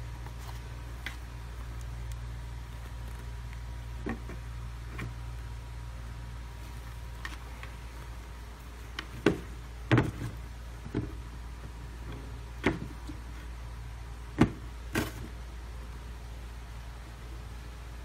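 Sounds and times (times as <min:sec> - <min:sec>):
steady low hum: 0:00.0 - 0:18.0
shoe knocking on cardboard box: 0:09.2 - 0:11.2.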